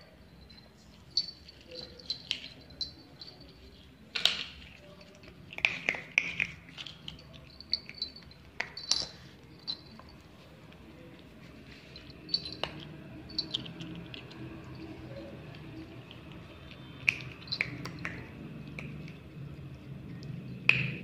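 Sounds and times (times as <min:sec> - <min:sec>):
small bells jingling: 0:00.0 - 0:19.4
clicks and taps on tile floor: 0:04.1 - 0:10.2, 0:12.3 - 0:19.3, 0:20.1 - 0:21.0.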